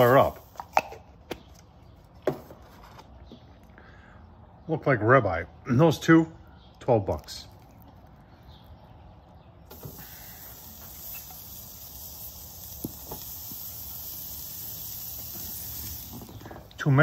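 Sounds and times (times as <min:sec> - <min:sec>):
steaks sizzling on grill: 0:00.0 - 0:00.8, 0:09.7 - 0:16.9.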